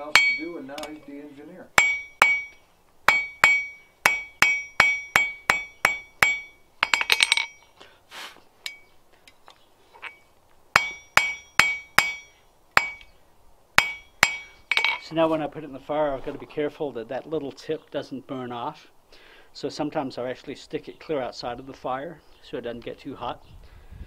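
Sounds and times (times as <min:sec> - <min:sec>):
hammer striking hot steel on anvil: 0:00.0 - 0:01.0, 0:01.8 - 0:07.6, 0:08.6 - 0:08.9, 0:10.8 - 0:13.1, 0:13.8 - 0:15.0.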